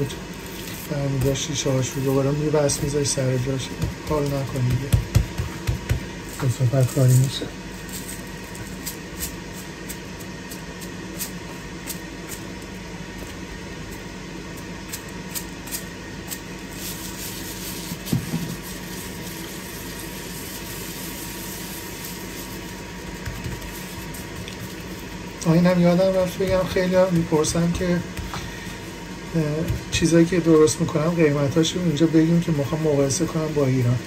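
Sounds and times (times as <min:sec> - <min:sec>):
gloved hand rubbing on plastic wrap: 0:00.0 - 0:04.7, 0:06.2 - 0:08.6, 0:16.7 - 0:28.8
steady hum: 0:00.0 - 0:34.0.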